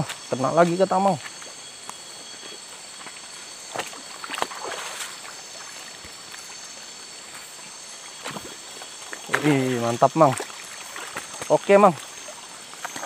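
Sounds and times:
night insects buzzing: 0.0s - 13.0s
water splashing: 3.1s - 13.0s.

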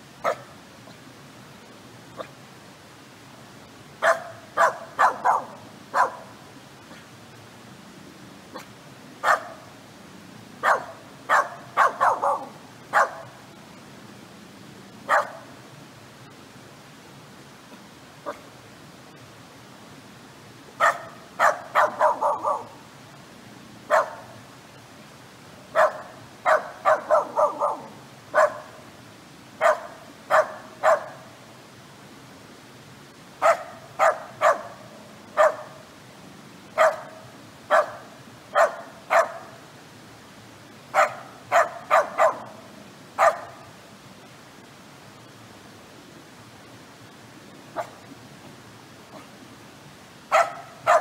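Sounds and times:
dog barking: 0.2s - 0.5s, 4.0s - 6.3s, 8.6s - 9.6s, 10.6s - 13.3s, 15.1s - 15.5s, 20.8s - 22.8s, 23.9s - 24.3s, 25.8s - 28.8s, 29.6s - 31.2s, 33.4s - 34.7s, 35.4s - 35.8s, 36.8s - 39.5s, 41.0s - 42.5s, 43.2s - 43.6s, 50.3s - 51.0s.

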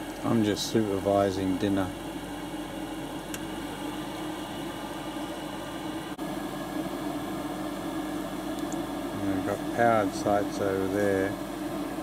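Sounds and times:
exhaust fan whirring: 0.0s - 12.0s.

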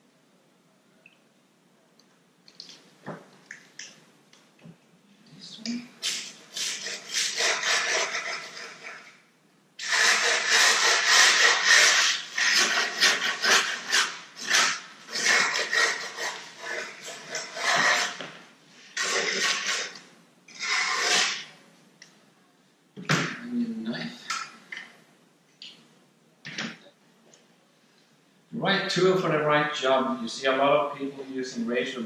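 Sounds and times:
knife rasping grip tape: 6.0s - 9.0s, 9.8s - 18.2s, 19.0s - 21.5s.

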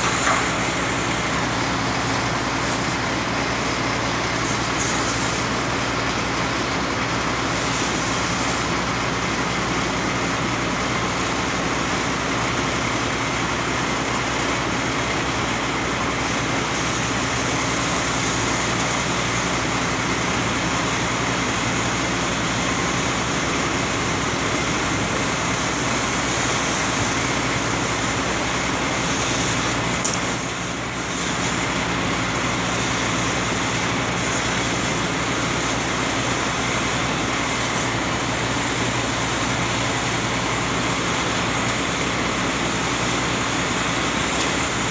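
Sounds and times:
steady hiss: 0.0s - 6.2s
city street noise: 0.0s - 44.9s
engine idling: 0.0s - 44.9s.

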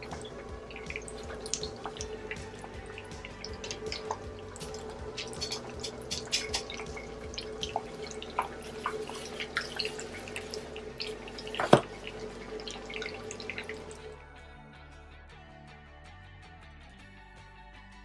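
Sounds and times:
dough sizzling in hot oil: 0.0s - 14.1s.

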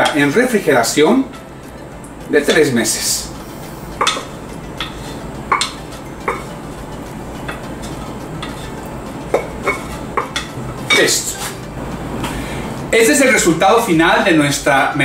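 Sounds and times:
wooden spoon scraping saucepan: 7.5s - 11.6s.

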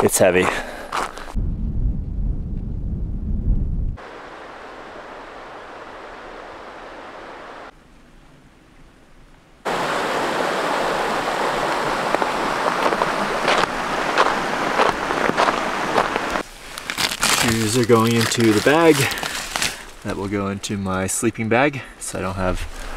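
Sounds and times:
crunching footsteps: 0.0s - 1.4s, 11.6s - 20.6s
rushing river water: 4.0s - 7.8s, 9.6s - 17.8s.

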